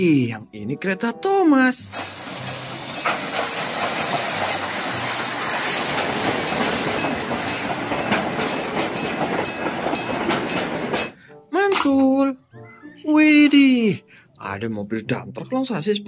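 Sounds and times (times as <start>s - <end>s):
steam hissing: 1.9s - 11.2s
train coaches rumbling past: 1.9s - 11.2s
wheels clicking over rail joints: 1.9s - 12.1s.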